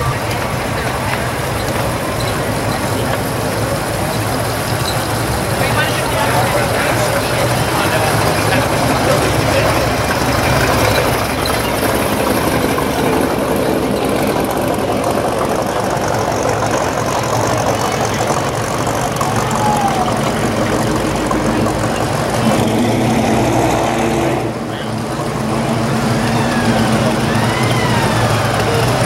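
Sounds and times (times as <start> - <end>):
car engines idling: 0.0 - 29.0
loud engine note: 0.0 - 29.0.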